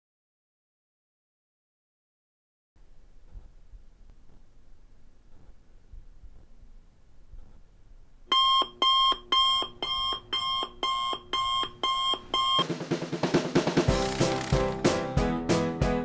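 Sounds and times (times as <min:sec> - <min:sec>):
alarm clock beeping: 0:08.3 - 0:12.6.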